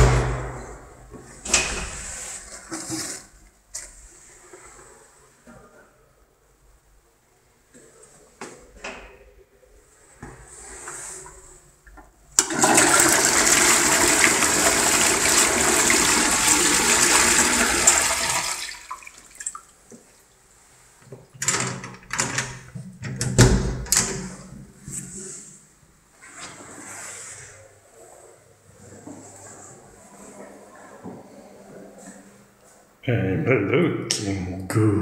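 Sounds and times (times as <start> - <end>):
heavy thump: 0.0 - 1.0
toilet flushing: 12.4 - 19.7.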